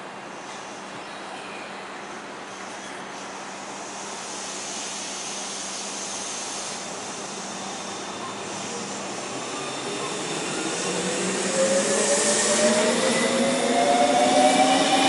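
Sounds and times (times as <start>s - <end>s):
electric train wheel and motor noise: 3.9s - 15.0s
thin whine rising in pitch: 7.8s - 15.0s.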